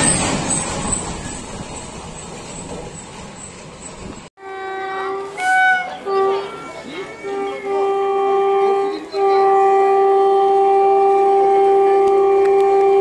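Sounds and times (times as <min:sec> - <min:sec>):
train horn blasts: 0:04.4 - 0:13.0.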